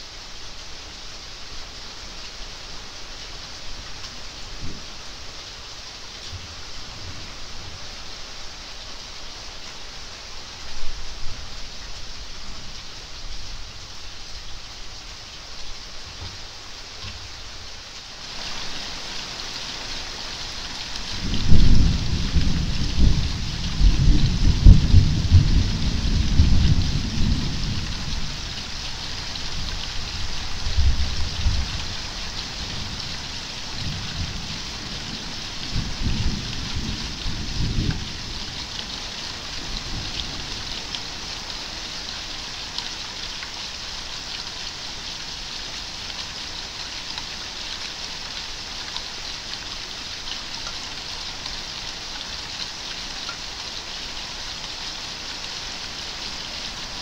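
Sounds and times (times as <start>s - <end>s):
steady rain hissing: 0.0s - 57.0s
thunder rumbling: 21.2s - 28.4s.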